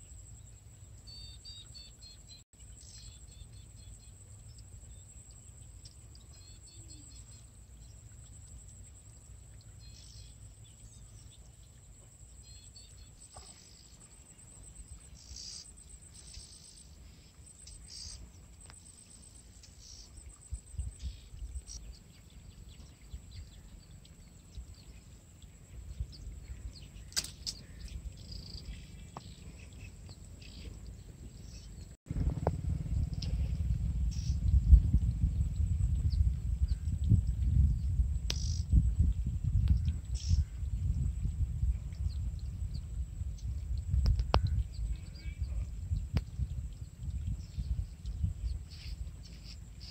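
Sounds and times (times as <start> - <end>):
faint bird chirps: 0.0 - 32.0, 33.0 - 38.8, 39.7 - 41.0, 41.7 - 49.9
wind rumbling on microphone: 0.0 - 49.9
high insect whine: 12.1 - 21.8, 31.4 - 41.6
sharp click: 27.1 - 27.6, 38.3 - 38.6.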